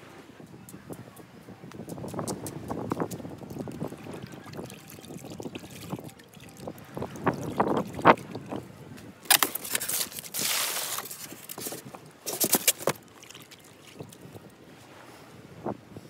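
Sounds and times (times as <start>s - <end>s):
rush of water: 2.0s - 15.1s
hands splashing water in bucket: 9.3s - 14.2s.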